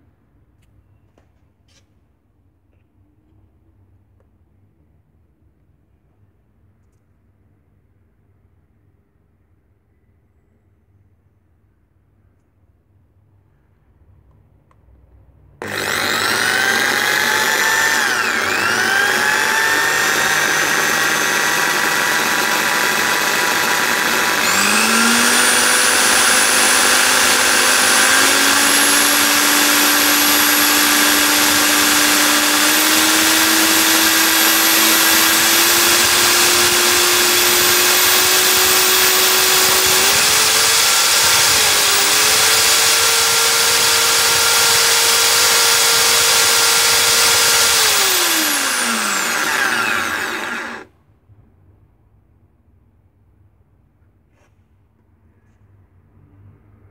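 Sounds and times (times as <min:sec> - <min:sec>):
electric drill motor whine: 0:15.6 - 0:50.9.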